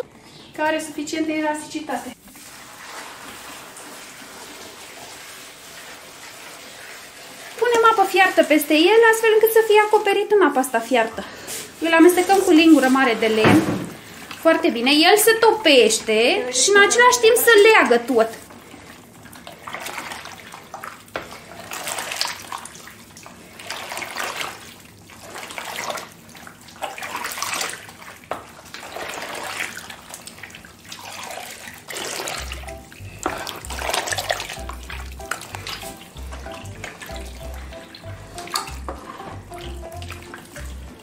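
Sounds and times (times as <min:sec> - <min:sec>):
spoon stirring sloshing water: 0:02.3 - 0:41.0
background music with low beat: 0:32.4 - 0:41.0.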